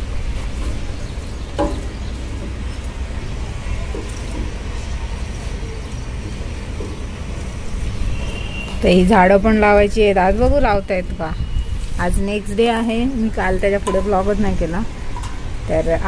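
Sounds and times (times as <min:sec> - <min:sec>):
wind buffeting microphone: 0:00.0 - 0:16.0
small knocks: 0:01.5 - 0:03.0, 0:13.8 - 0:14.4.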